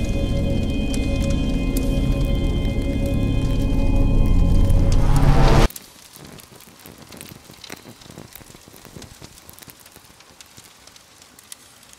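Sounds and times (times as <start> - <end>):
loud music: 0.0 - 5.7
crackling clicks: 0.0 - 11.9.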